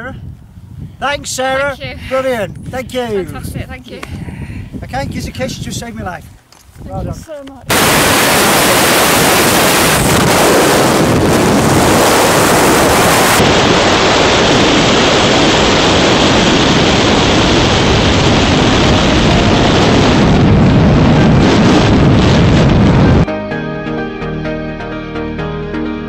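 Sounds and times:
wind buffeting microphone: 0:00.0 - 0:23.3.

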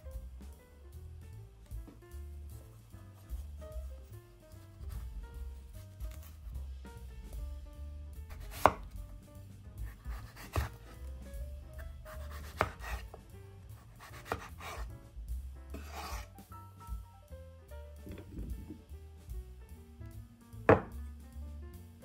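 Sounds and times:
knife knocking on cutting board: 0:08.3 - 0:09.0, 0:09.8 - 0:11.0, 0:12.1 - 0:13.2, 0:14.0 - 0:14.9, 0:20.7 - 0:21.0.

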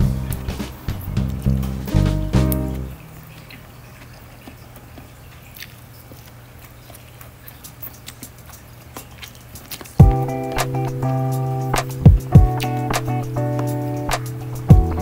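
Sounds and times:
music with heavy beat: 0:00.0 - 0:02.8, 0:10.0 - 0:15.0.

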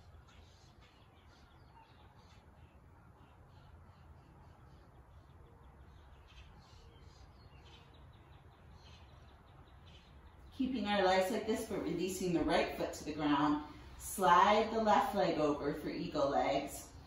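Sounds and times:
faint bird chirps: 0:00.0 - 0:10.6.

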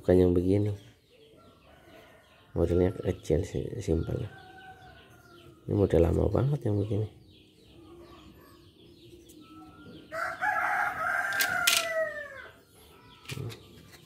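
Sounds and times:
rooster crowing: 0:10.1 - 0:12.6.

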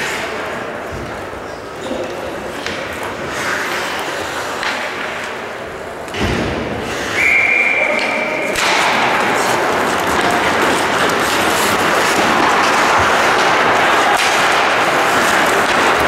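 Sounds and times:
referee's whistle blast: 0:07.1 - 0:08.5.

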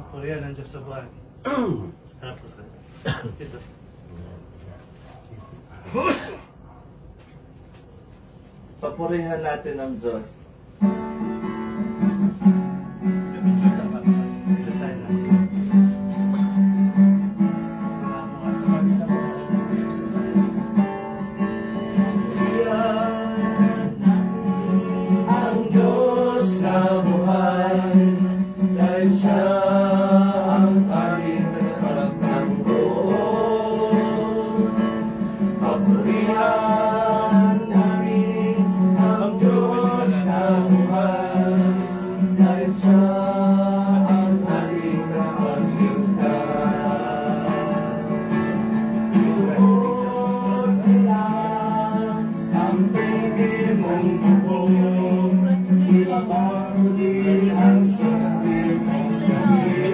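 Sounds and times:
acoustic guitar strumming: 0:10.8 - 0:59.9
group singing a hymn: 0:15.6 - 0:59.9.

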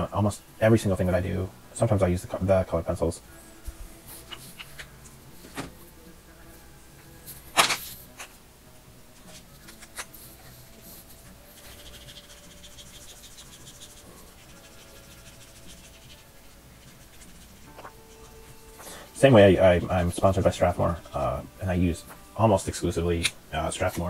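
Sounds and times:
marker squeaky scratching: 0:09.6 - 0:18.6.

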